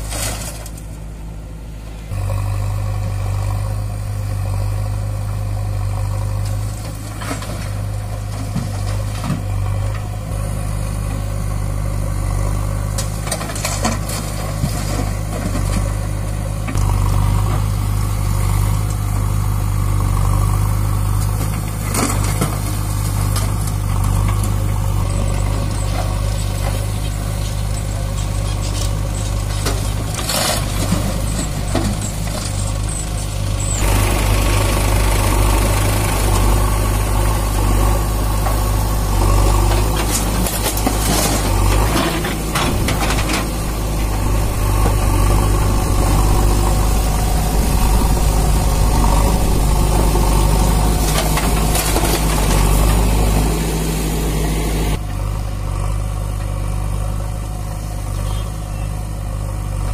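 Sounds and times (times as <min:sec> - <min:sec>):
stones clattering into trolley: 0:00.0 - 0:01.0, 0:39.6 - 0:45.6, 0:50.5 - 0:53.5
diesel engines running: 0:00.0 - 0:59.9.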